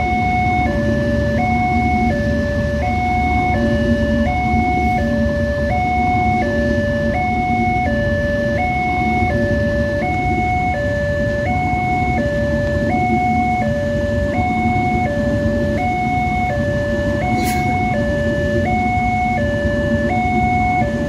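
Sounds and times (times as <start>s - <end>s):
train coaches rolling past: 0.0s - 21.0s
two-tone crossing warning siren: 0.0s - 21.0s.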